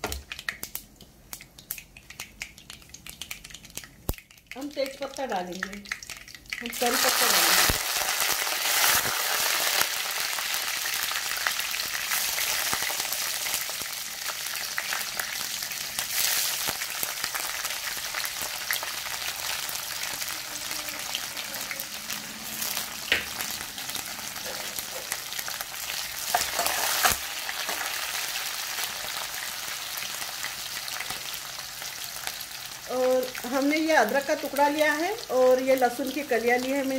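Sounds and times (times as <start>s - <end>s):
hot oil sizzling: 0.0s - 36.9s.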